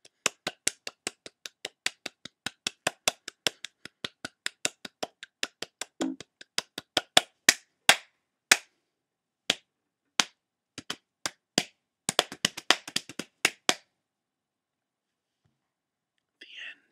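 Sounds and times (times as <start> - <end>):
person clapping hands: 0.0 - 8.7, 9.5 - 13.9.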